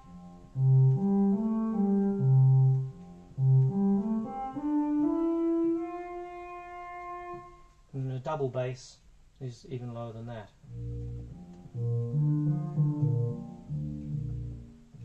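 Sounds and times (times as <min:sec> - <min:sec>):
synth playing low notes: 0:00.0 - 0:06.6, 0:10.6 - 0:15.0.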